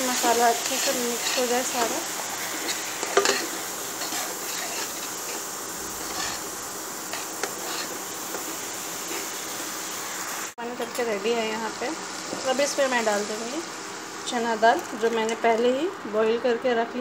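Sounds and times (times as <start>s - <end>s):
pan sizzling: 0.0s - 16.4s
spoon stirring and scraping: 0.2s - 6.5s, 7.1s - 9.4s.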